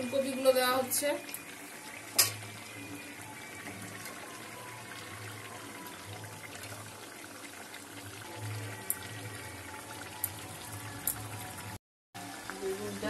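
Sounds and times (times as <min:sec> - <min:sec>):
oil sizzling in a pan: 0:00.0 - 0:13.0
sharp knock in pan: 0:02.2 - 0:02.4.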